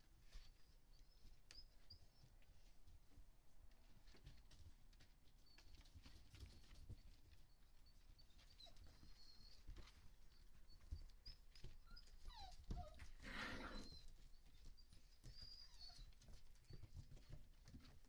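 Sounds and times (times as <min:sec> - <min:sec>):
puppy whining: 0:00.2 - 0:02.6, 0:05.4 - 0:18.0
puppies whimpering and squeaking: 0:05.5 - 0:17.4
paws knocking on wooden floor: 0:08.4 - 0:18.0.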